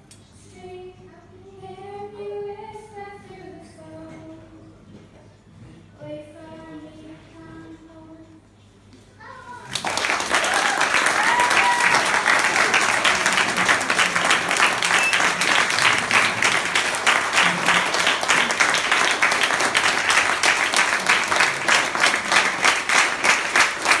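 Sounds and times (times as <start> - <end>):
crowd applauding: 9.7 - 24.0.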